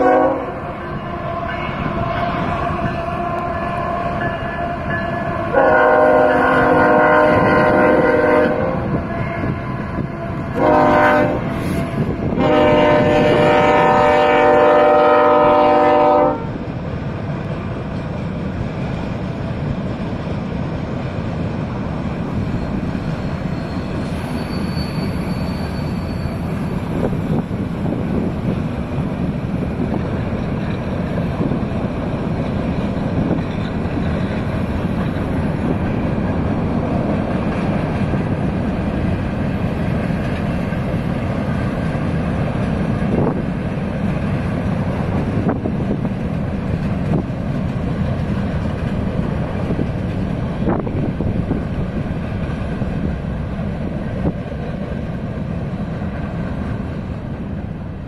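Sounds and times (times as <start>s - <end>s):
locomotive air horn blasts: 0.0s - 16.6s
freight cars rolling on rails: 0.0s - 58.0s.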